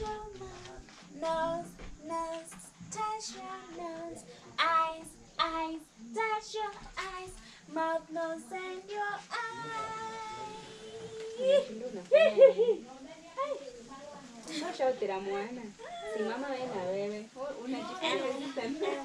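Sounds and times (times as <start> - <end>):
woman singing: 0.0 - 11.7.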